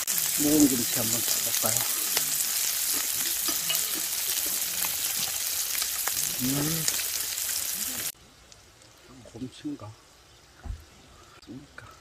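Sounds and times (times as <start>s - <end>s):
meat sizzling on grill pan: 0.0s - 8.2s.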